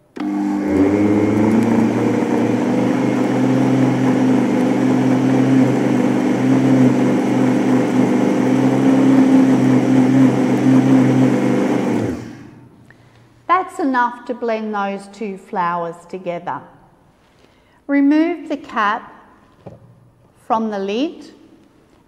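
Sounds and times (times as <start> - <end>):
blender motor running: 0.1 - 12.8.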